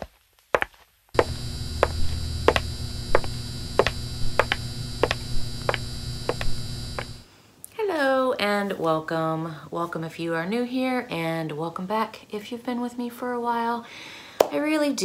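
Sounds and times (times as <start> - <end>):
electrical buzz and hum: 1.2 - 7.3.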